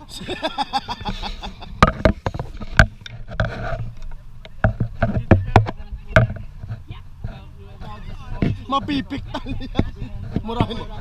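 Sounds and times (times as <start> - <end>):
sharp knocks and clicks: 1.8 - 7.4.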